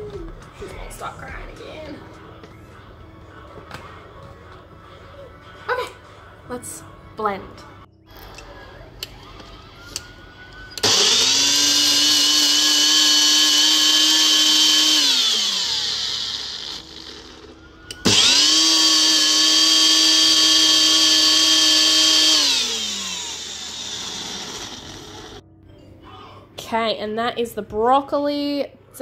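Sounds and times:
blender motor whining: 10.8 - 25.4.

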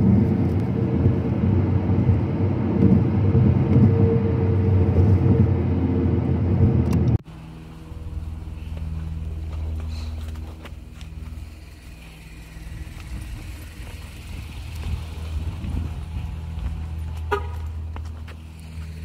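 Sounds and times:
car engine humming: 0.0 - 19.0
car horn toot: 17.2 - 17.8.

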